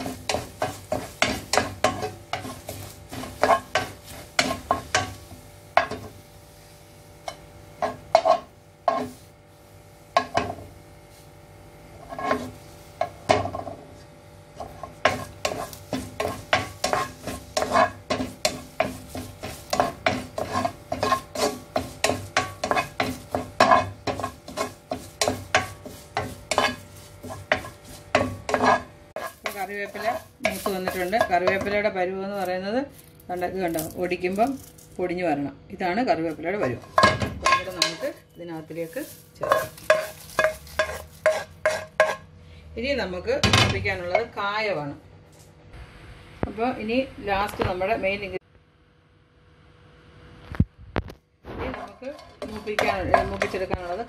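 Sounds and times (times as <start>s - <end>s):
spatula scraping a wok: 0.0s - 32.6s, 36.3s - 42.3s, 51.4s - 54.0s.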